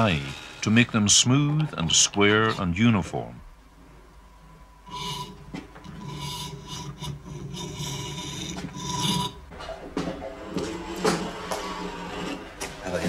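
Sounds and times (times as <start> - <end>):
wood strips rasping through steel die: 4.9 - 9.4.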